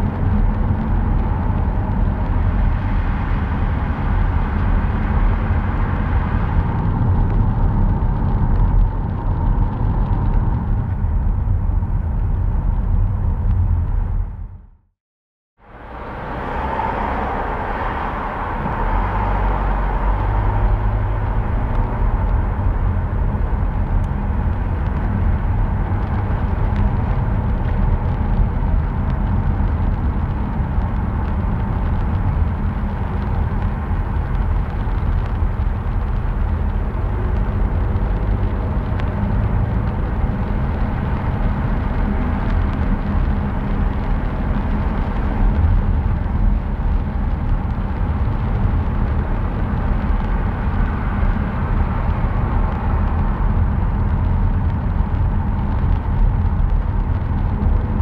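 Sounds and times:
car engine and road noise: 0:00.0 - 0:15.0, 0:15.6 - 0:58.0.

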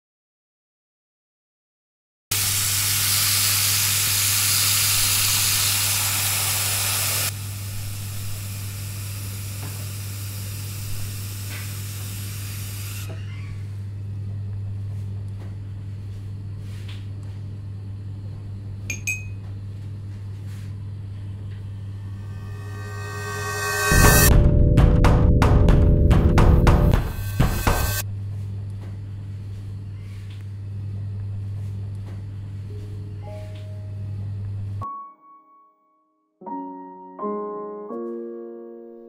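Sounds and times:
running water hissing: 0:02.4 - 0:13.1
small clink: 0:18.9 - 0:19.5
steady low hum: 0:19.8 - 0:34.8.

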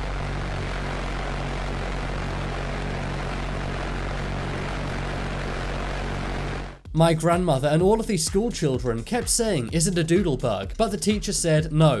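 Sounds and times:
pulse-jet engine buzzing drone: 0:00.0 - 0:06.9.

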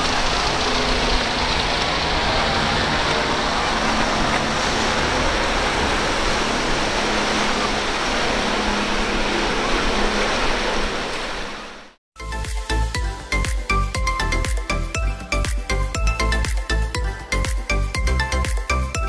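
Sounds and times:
rushing spray and water: 0:00.0 - 0:12.0
outboard engines droning: 0:00.0 - 0:19.0.

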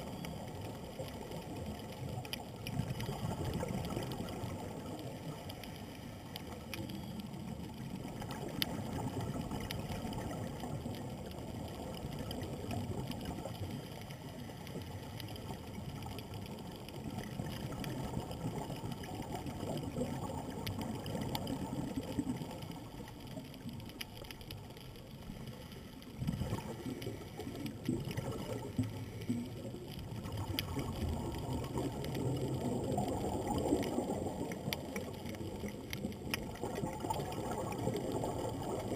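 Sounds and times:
faint clicks: 0:00.0 - 0:38.9
diver exhaled bubbles underwater: 0:01.4 - 0:05.6, 0:07.8 - 0:23.3, 0:26.1 - 0:38.9.

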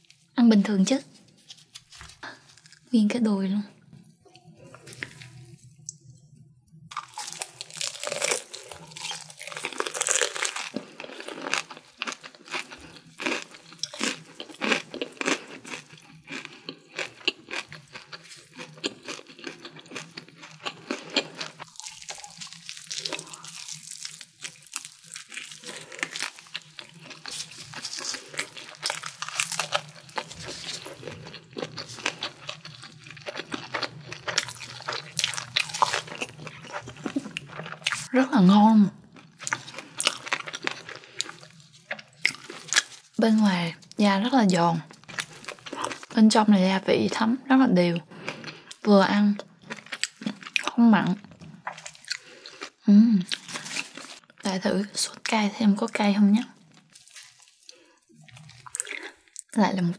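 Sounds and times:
wet chewing: 0:06.8 - 0:38.2, 0:39.1 - 0:46.2, 0:48.1 - 0:54.4, 0:56.6 - 0:59.6
fried chicken skin crunching: 0:06.9 - 0:38.1, 0:39.2 - 0:43.5, 0:53.3 - 0:54.2, 0:56.6 - 0:59.5.

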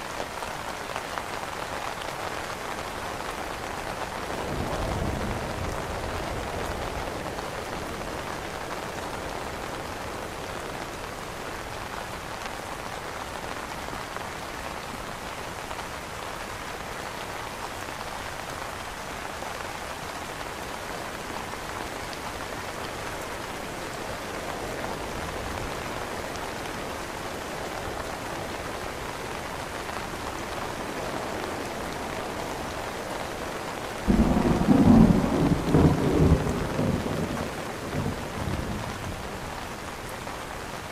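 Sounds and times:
rain pattering on an umbrella: 0:00.0 - 0:40.9
thunder clap and rumble: 0:34.1 - 0:39.2.

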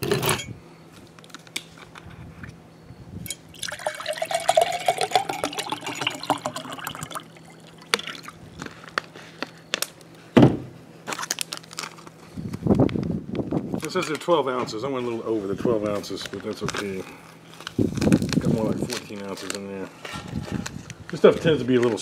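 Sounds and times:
water pouring into pitcher: 0:03.5 - 0:08.5
thump: 0:10.4 - 0:10.7.

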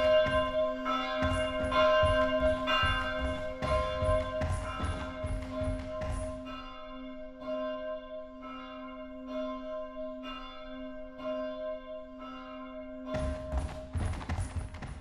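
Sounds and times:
bell ringing: 0:00.0 - 0:06.7.

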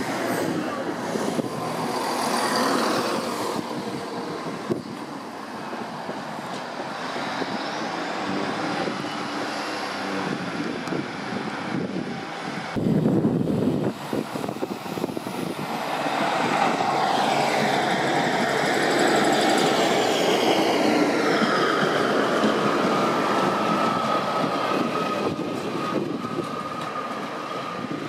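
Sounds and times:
diesel train engine: 0:00.0 - 0:28.0
wheels on rails: 0:13.6 - 0:28.0.

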